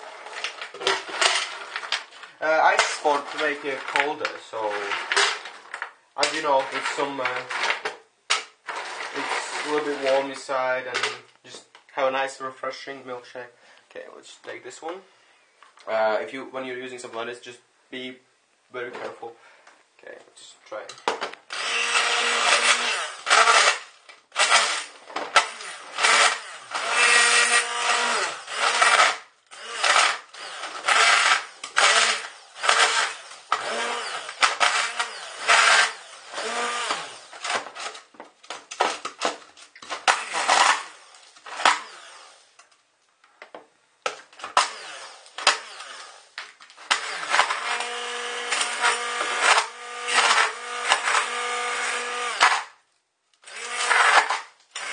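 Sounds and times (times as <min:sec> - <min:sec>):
stick blender crushing ice: 0:00.1 - 0:10.3, 0:21.5 - 0:42.3, 0:44.1 - 0:52.8, 0:53.4 - 0:54.9.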